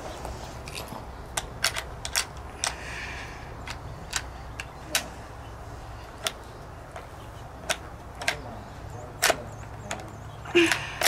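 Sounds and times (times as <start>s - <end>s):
rounds clicking into magazine: 0.7s - 2.8s, 3.6s - 5.1s, 6.2s - 8.4s, 9.1s - 11.0s.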